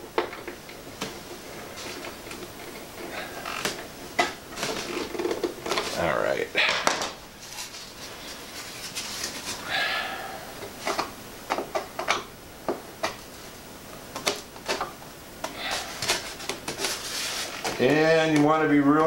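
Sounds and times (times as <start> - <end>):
plastic parts clicking and tapping: 10.6 - 13.2.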